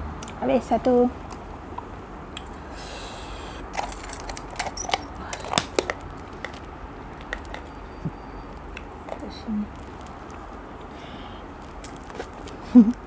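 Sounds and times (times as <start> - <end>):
plastic packaging crinkling: 8.5 - 10.6, 11.5 - 12.6.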